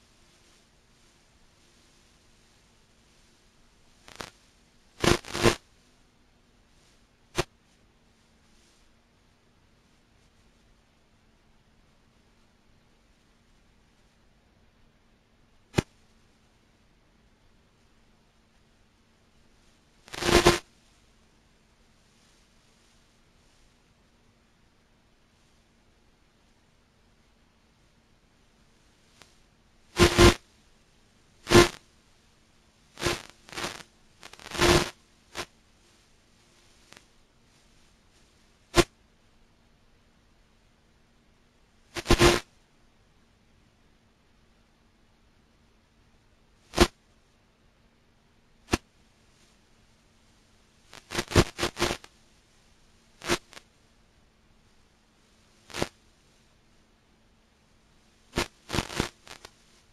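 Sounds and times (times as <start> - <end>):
faint steady hum: 0.0 - 59.9
bursts of hissing static: 4.0 - 4.4, 5.0 - 5.6, 20.0 - 20.7, 30.0 - 30.4, 31.4 - 31.8, 32.9 - 35.5, 42.0 - 42.5, 46.7 - 47.0, 50.9 - 52.1, 53.2 - 53.6, 55.6 - 56.0, 58.2 - 59.8
sharp crackles: 4.0 - 4.4, 5.0 - 5.6, 20.1 - 20.6, 30.0 - 30.4, 31.5 - 31.8, 33.0 - 35.5, 42.0 - 42.4, 50.9 - 52.0, 55.7 - 55.9, 58.4 - 59.6.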